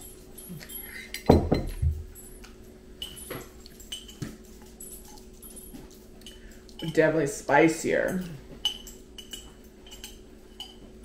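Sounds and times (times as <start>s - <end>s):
tableware clicking: 0.6s - 4.3s, 8.1s - 10.9s.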